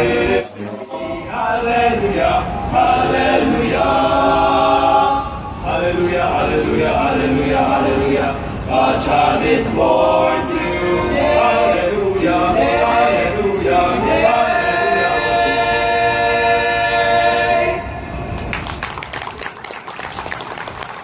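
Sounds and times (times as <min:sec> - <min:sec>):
male choir singing a cappella: 0:00.0 - 0:18.3
people clapping: 0:18.4 - 0:21.0.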